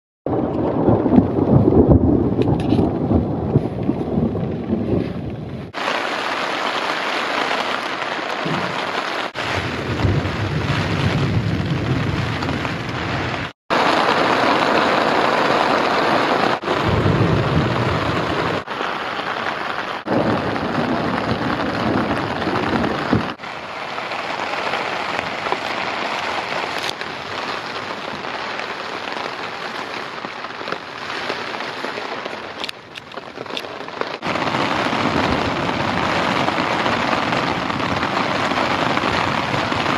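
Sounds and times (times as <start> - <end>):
thunder rolls: 0.3 - 5.9, 8.4 - 15.3, 16.5 - 18.7, 20.0 - 23.4, 34.2 - 39.9
heavy rain on tent fabric: 0.3 - 39.9.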